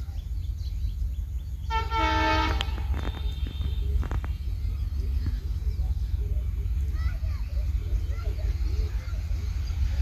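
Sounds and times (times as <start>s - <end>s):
steady low rumble: 0.0s - 10.0s
locomotive horn: 1.6s - 4.0s.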